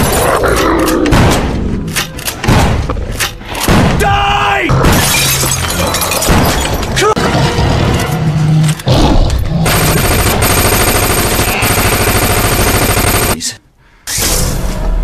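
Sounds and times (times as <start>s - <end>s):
rapid automatic gunfire: 9.6s - 13.4s.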